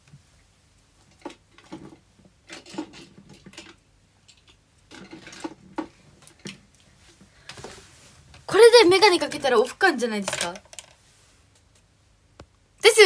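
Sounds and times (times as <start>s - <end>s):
small objects knocking and clattering: 1.1s - 6.7s, 10.2s - 11.0s.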